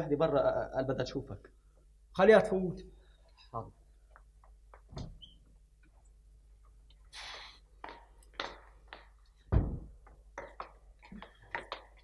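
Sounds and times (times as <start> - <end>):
door swish: 4.9 - 5.3, 9.5 - 10.0
loud low thump: 9.5 - 10.0.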